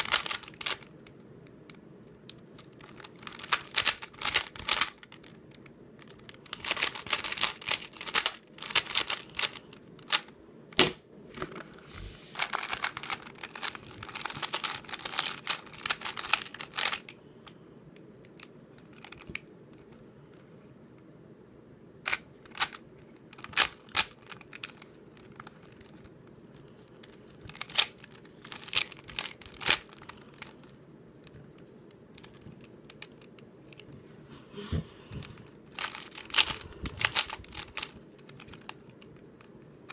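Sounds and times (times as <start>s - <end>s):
speed cube plastic clicking: 0.0s - 10.3s, 12.4s - 17.1s, 18.3s - 19.9s, 22.0s - 33.9s, 35.3s - 39.9s.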